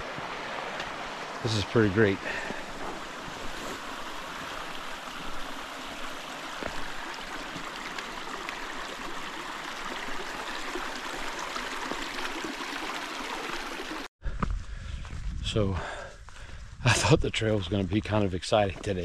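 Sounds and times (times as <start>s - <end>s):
creek running over rocks: 0.0s - 14.1s.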